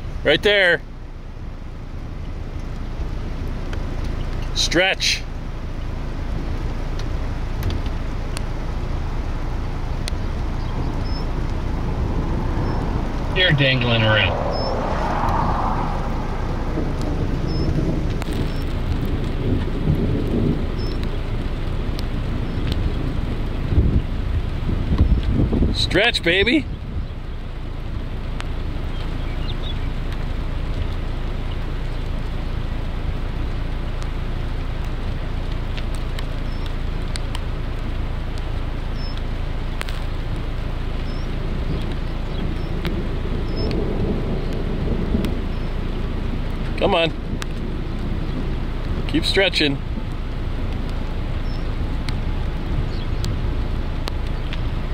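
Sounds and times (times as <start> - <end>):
rain: 0.0 - 54.9
wind: 0.0 - 54.9
steady rushing noise: 6.1 - 26.6, 33.4 - 54.9
low thunder rumble: 6.2 - 25.8, 41.0 - 54.9.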